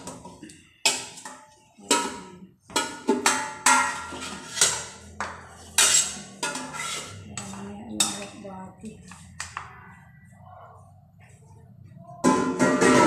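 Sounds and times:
metallic clanks on pot: 0.0 - 8.4, 12.2 - 13.0.

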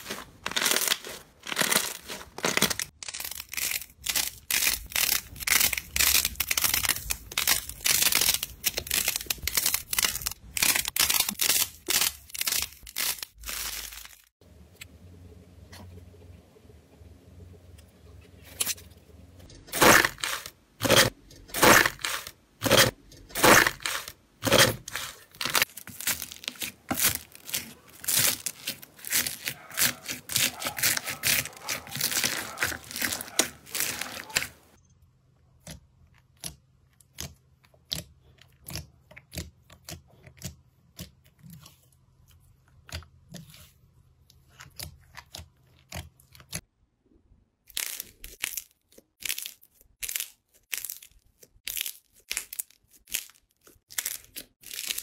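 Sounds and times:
slime crackling when squished: 23.4 - 34.6.

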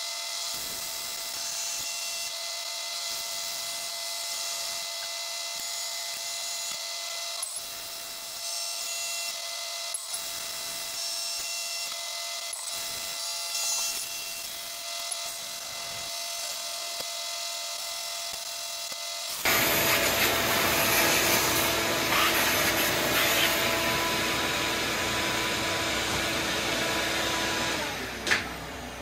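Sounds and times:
milling machine spindle whine: 18.7 - 29.0
hiss of metal cutting: 19.3 - 28.0.

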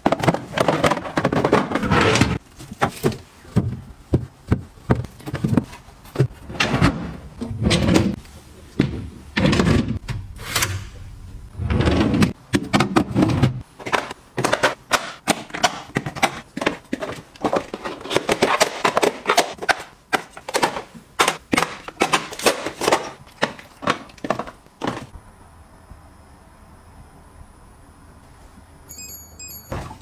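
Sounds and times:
plastic containers clicking and knocking: 0.0 - 6.3, 12.3 - 25.1.

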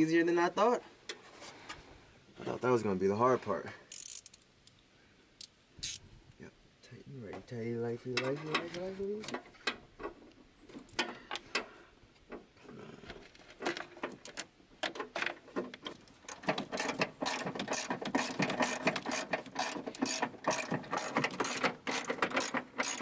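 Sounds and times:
ratchet wrench clicking: 3.9 - 4.4, 5.4 - 6.0, 16.7 - 23.0.

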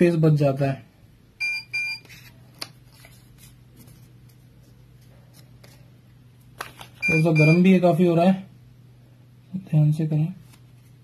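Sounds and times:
low steady hum: 0.0 - 11.0
paper rustling: 2.0 - 7.0.

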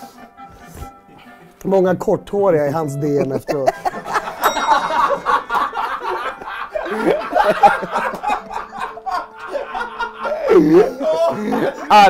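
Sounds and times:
men laughing: 2.9 - 12.0.

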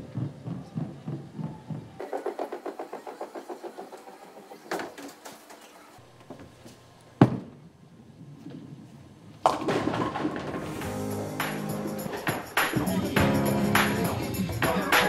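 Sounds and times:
bowling ball rolling: 8.4 - 11.9
bowling pins clacking: 9.4 - 13.0.

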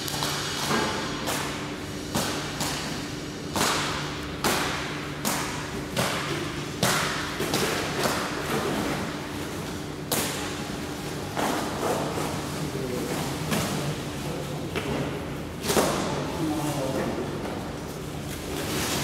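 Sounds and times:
sharp knocks and slaps of parts: 0.0 - 8.8
steady low hum: 0.0 - 19.0.

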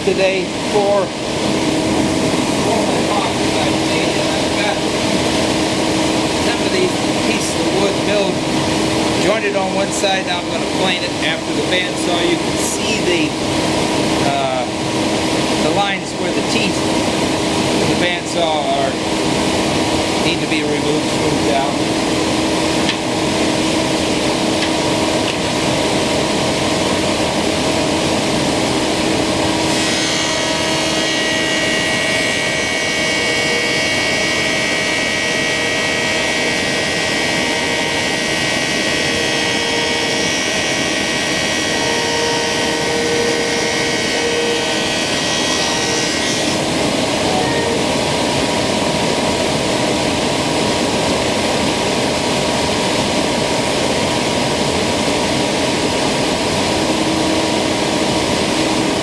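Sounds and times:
thickness planer motor running: 20.9 - 59.0
wood board being planed: 29.7 - 46.7.

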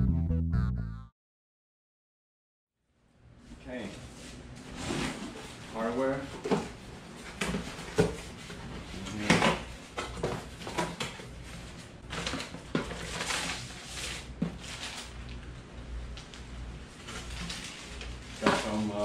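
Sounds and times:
paper and plastic rustling: 5.0 - 15.4, 16.2 - 19.0.

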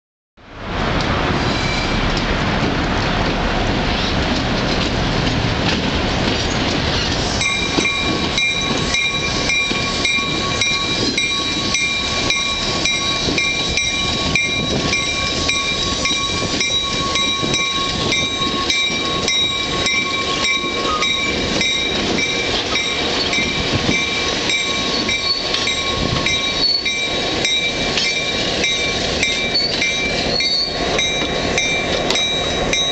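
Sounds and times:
diesel locomotive passing: 0.4 - 32.9
wheels rolling on rails: 1.0 - 32.9
locomotive bell ringing: 7.4 - 32.9.

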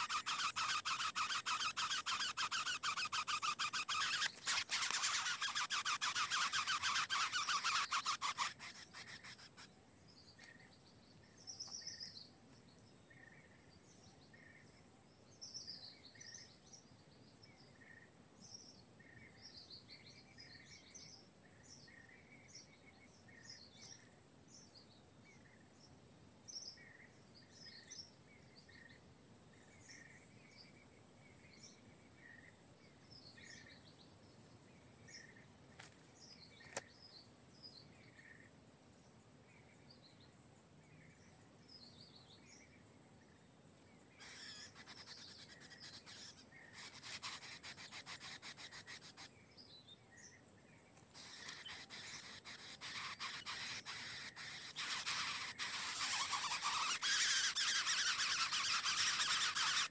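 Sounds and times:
high-pitched insect drone: 0.0 - 9.7, 44.2 - 49.3, 51.1 - 59.9
bird chirps: 0.0 - 12.3, 44.1 - 50.4, 51.1 - 59.9.

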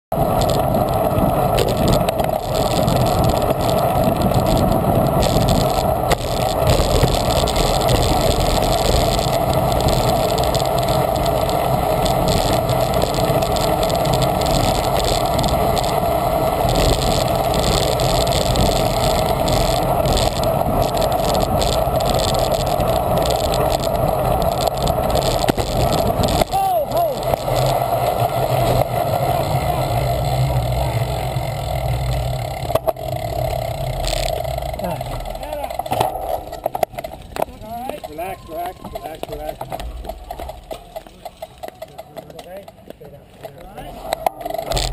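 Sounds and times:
wind rush on microphone: 0.1 - 32.8
bicycle tyre noise: 0.1 - 44.9.

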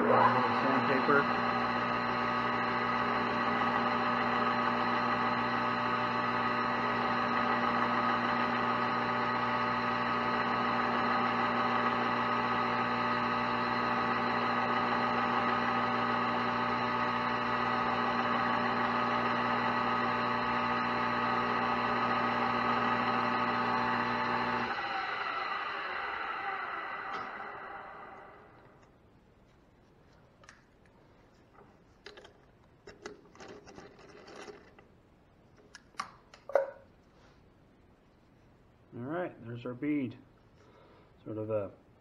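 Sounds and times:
metal lathe humming: 0.0 - 28.8.

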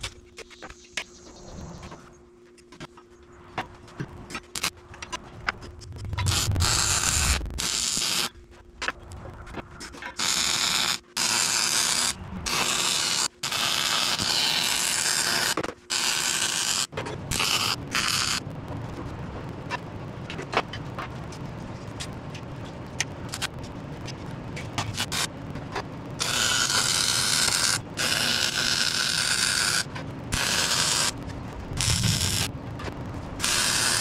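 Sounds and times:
arc welding crackling hiss: 4.5 - 4.7, 5.8 - 8.4, 10.1 - 19.2, 21.8 - 34.0.

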